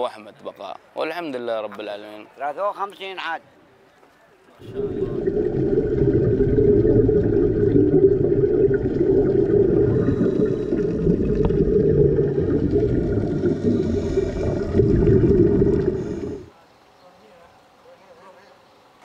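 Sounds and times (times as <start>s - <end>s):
muffled underwater rumble: 4.6s - 16.5s.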